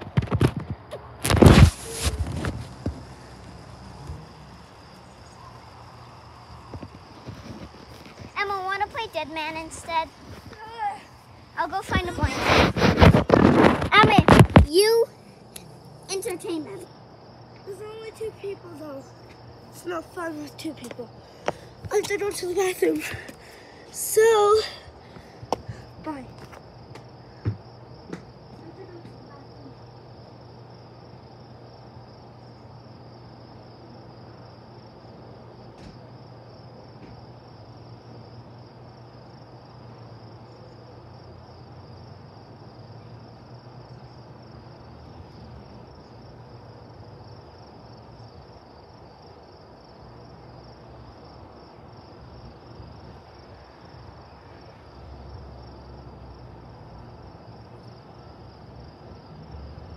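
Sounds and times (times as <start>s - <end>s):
insects chirping: 0.0s - 59.9s.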